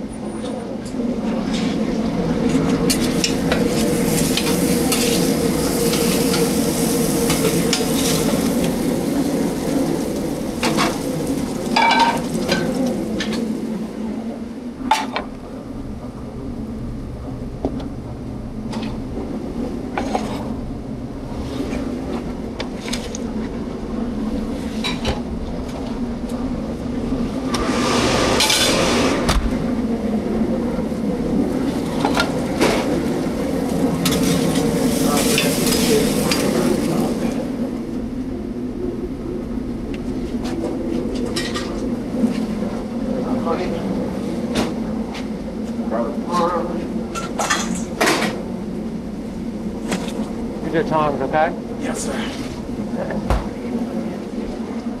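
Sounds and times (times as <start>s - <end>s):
steady low hum: 0.0s - 55.0s
food sizzling on hot pans: 3.6s - 13.4s, 34.1s - 36.9s.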